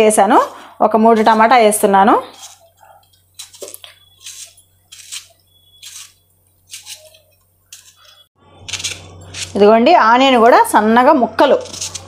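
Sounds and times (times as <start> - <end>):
knife slicing tomato: 0.4 - 9.6, 11.5 - 12.0.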